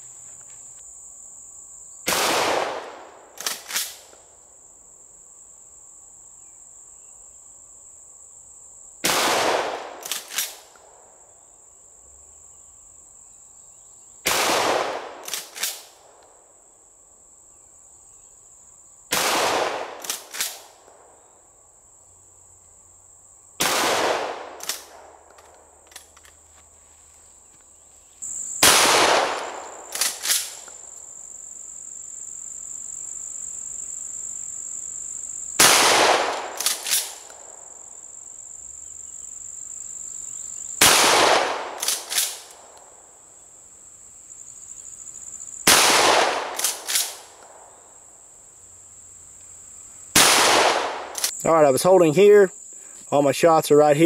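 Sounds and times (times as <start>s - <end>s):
high insect buzz: 0.0s - 54.0s
shotgun shots: 2.1s - 4.0s, 9.0s - 10.6s, 14.3s - 15.9s, 19.1s - 20.7s, 23.6s - 25.1s, 28.6s - 30.6s, 35.6s - 37.3s, 40.8s - 42.5s, 45.7s - 47.4s, 50.2s - 51.3s.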